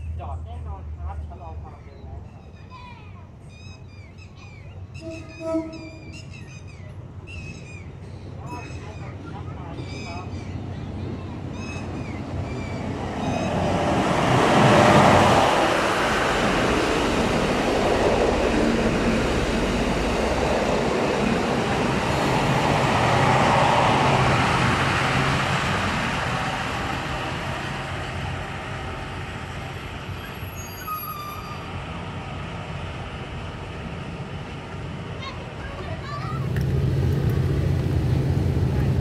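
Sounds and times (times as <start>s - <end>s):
diesel engines of passing train: 0.0s - 39.0s
train wheels on rails: 10.6s - 39.0s.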